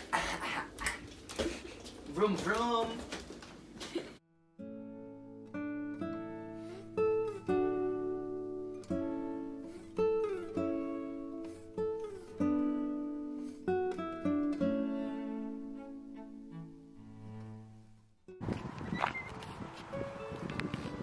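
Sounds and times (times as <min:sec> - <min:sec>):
acoustic guitar plucking: 0:04.6 - 0:18.4.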